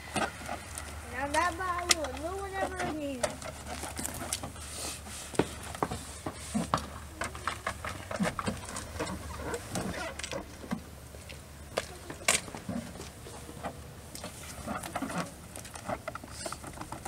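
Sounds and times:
footsteps on wet driveway: 0.0 - 9.8.

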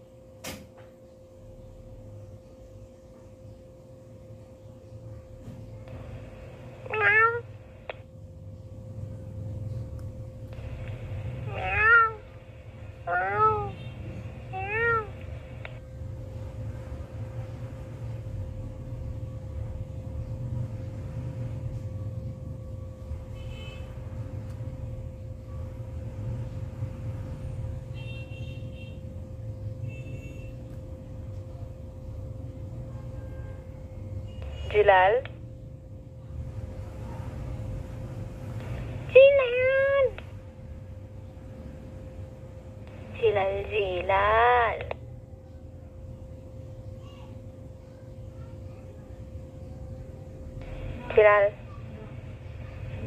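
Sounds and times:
faint constant hum: 0.0 - 53.0
low background rumble: 1.0 - 53.0
radio hiss: 5.9 - 8.0, 10.5 - 15.8, 42.9 - 45.0, 50.6 - 53.0
cat meowing through walkie-talkie: 6.9 - 7.4, 11.5 - 12.2, 14.6 - 15.2.

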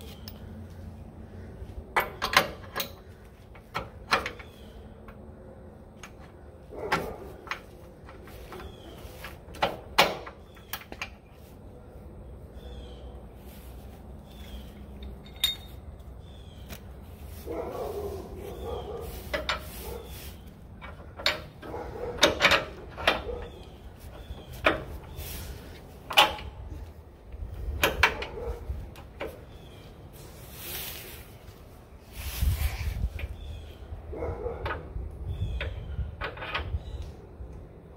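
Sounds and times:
steel hardware clicking and knocking: 1.9 - 5.3, 19.3 - 19.7, 20.7 - 25.2, 26.0 - 26.7, 27.7 - 29.4.

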